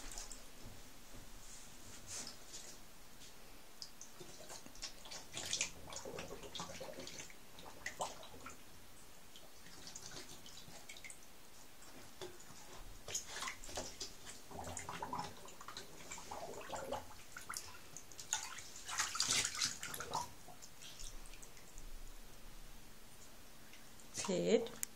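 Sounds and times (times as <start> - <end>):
bathwater dripping and splashing: 0.0 - 1.2, 2.0 - 22.4
dog blowing bubbles in water: 4.3 - 8.6, 13.1 - 17.6.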